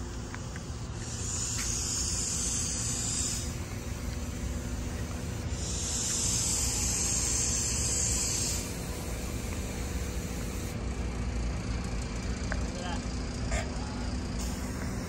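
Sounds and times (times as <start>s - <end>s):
insect buzz: 0.5s - 10.8s.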